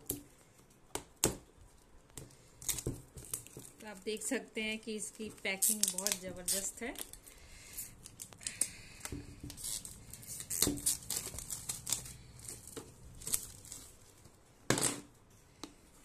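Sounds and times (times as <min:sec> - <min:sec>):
plastic shrink-wrap crinkling: 0:02.4 - 0:14.4.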